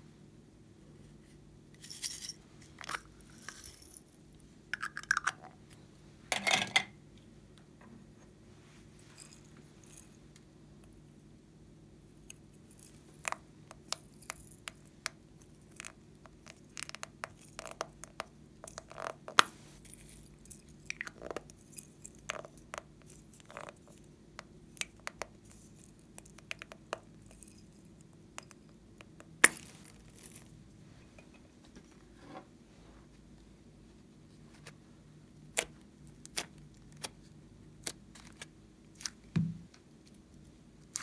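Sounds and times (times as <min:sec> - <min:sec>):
plastic capsules clicking and creaking: 0:04.8 - 0:05.6.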